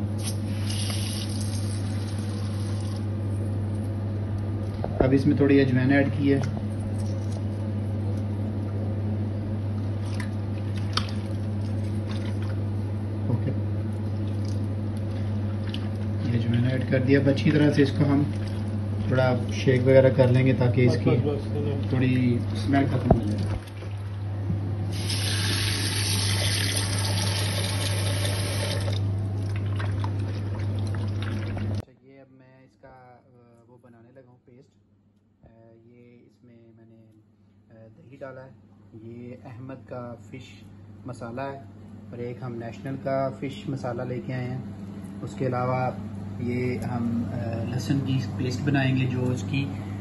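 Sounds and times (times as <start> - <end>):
steady low hum: 0.0 - 50.0
wet squishing of fish: 6.8 - 8.2, 9.7 - 12.7, 13.9 - 16.3, 18.1 - 19.1
small splashes and clicks: 10.0 - 12.6, 14.2 - 16.1
tap water running into bowl: 24.9 - 31.8.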